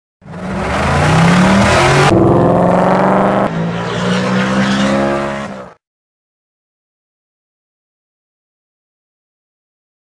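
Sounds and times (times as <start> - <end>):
car engine accelerating: 0.2 - 5.8.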